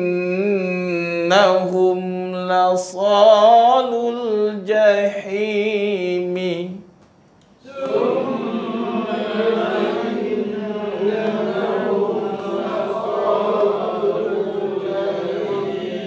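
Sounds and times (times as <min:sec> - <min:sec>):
man chanting melodically: 0:00.0 - 0:06.8
group chanting in unison: 0:07.6 - 0:16.0.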